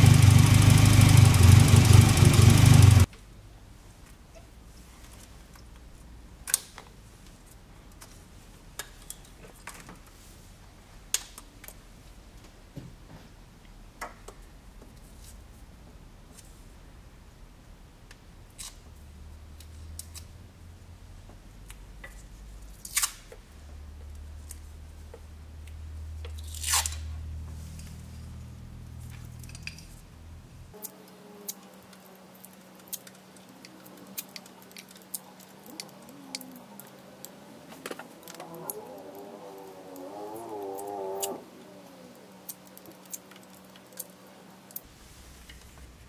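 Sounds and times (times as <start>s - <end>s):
low hum: 0.0s - 3.1s
wires clicking and crinkling: 30.7s - 44.9s
sharp snaps: 37.8s - 41.4s.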